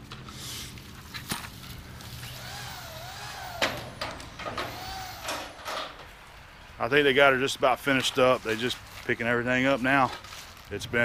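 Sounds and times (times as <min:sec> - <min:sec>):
sheet metal knocks and clanks: 0:03.6 - 0:06.1.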